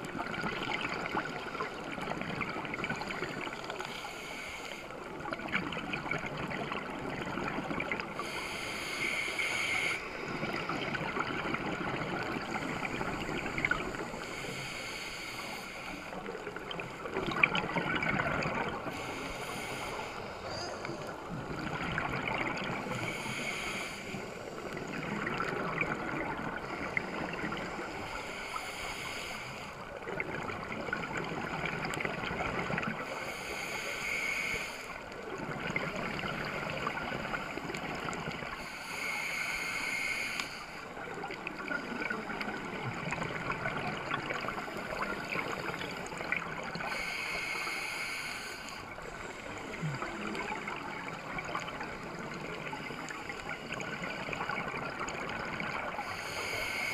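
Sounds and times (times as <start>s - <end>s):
rush of bubbles: 0.0s - 3.9s, 10.0s - 14.3s, 16.3s - 19.2s, 21.0s - 23.3s, 24.6s - 28.0s, 40.8s - 47.1s, 48.8s - 56.9s
scuba regulator breathing: 3.7s - 5.0s, 8.1s - 17.1s, 18.6s - 21.6s, 22.6s - 25.5s, 26.2s - 30.0s, 32.8s - 35.2s, 36.4s - 42.7s, 44.0s - 55.1s, 55.8s - 56.9s.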